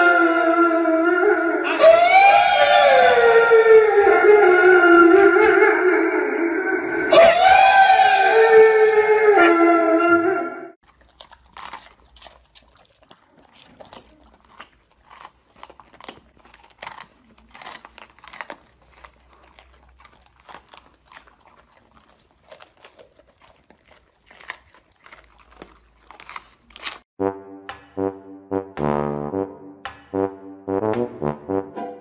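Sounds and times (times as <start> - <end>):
dogs crunching bell peppers: 10.8 - 27.1.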